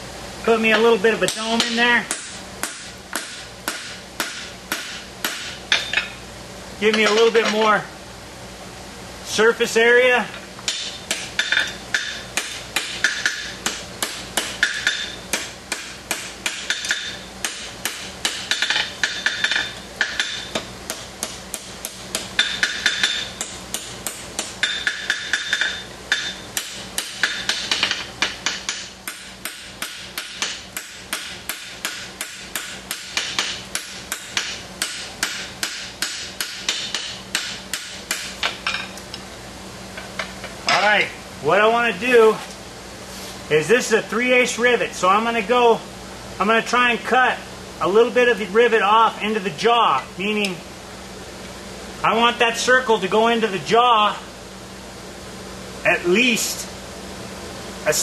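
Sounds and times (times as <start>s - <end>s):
hammer forging on anvil: 1.2s - 6.2s, 10.3s - 39.0s.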